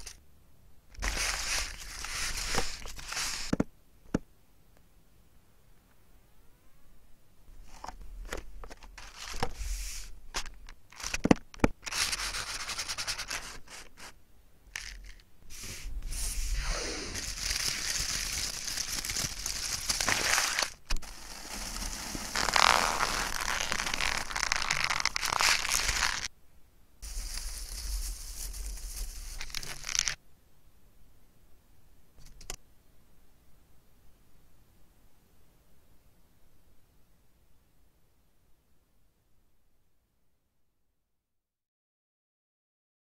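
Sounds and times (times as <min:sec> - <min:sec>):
paper crackling: 0:01.0 - 0:03.6, 0:07.8 - 0:14.2, 0:14.8 - 0:15.2, 0:17.1 - 0:26.3, 0:27.0 - 0:30.2.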